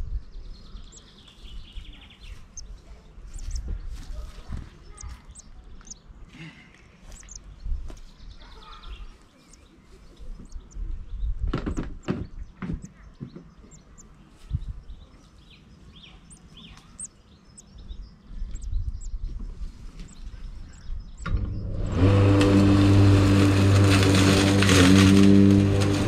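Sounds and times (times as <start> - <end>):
high bird chirps: 0.6 - 6.2, 7.0 - 19.4
engine running loud: 21.2 - 26.0.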